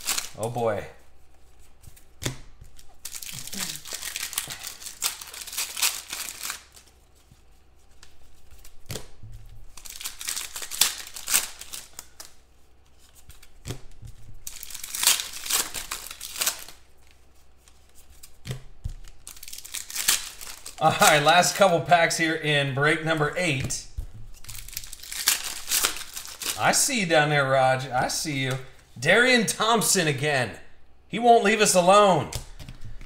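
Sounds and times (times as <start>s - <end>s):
card pack wrappers tearing and crinkling: 0.0s - 0.8s, 2.0s - 7.0s, 9.6s - 12.4s, 14.4s - 22.2s, 24.3s - 27.0s.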